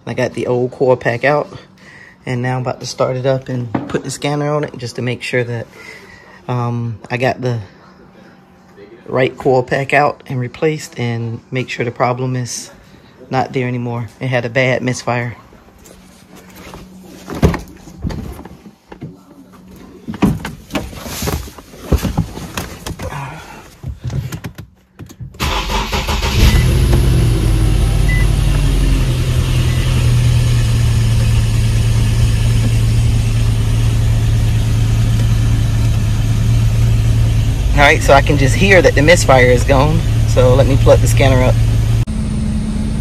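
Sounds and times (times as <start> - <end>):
car engine starting and idling: 25.4 - 43.0.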